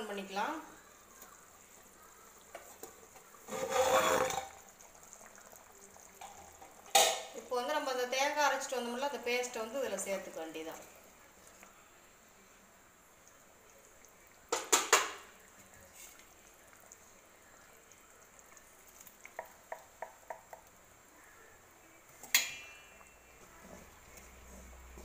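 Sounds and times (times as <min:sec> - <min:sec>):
spoon knocking on clay pot: 0:19.4 - 0:20.7.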